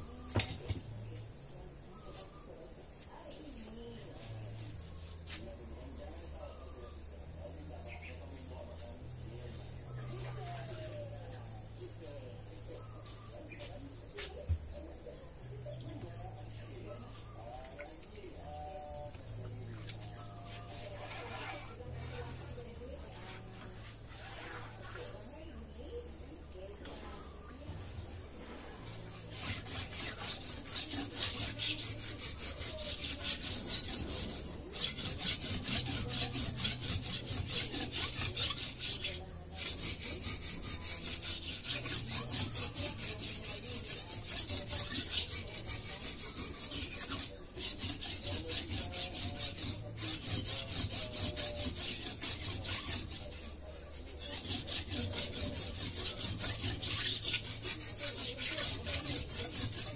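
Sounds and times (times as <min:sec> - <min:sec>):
blade scraping on whetstone: 0:07.8 - 0:14.9, 0:18.4 - 0:26.0, 0:26.6 - 0:59.9.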